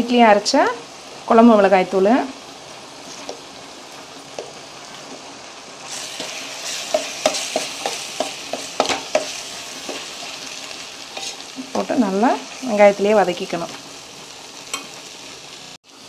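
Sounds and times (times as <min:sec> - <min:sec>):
onions frying with sizzle: 0:00.0 - 0:16.0
metal spoon tapping and scraping pot: 0:06.2 - 0:10.1, 0:11.1 - 0:11.4.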